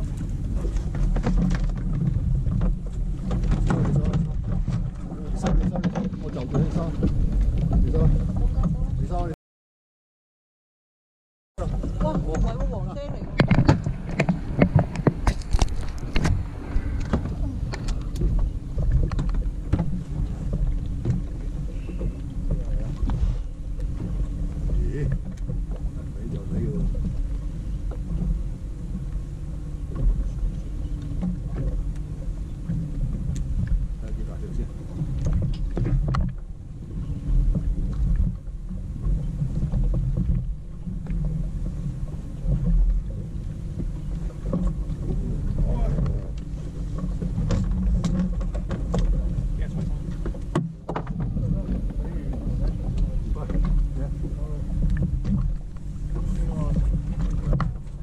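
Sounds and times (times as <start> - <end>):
boat engine running: 0.0 - 9.4, 11.6 - 58.0.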